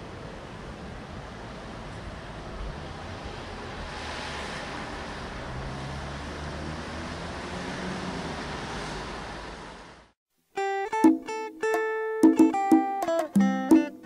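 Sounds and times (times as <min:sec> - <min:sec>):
distant city traffic: 0:00.0 - 0:10.2
wind: 0:00.0 - 0:10.2
clean guitar picking notes: 0:10.6 - 0:14.0.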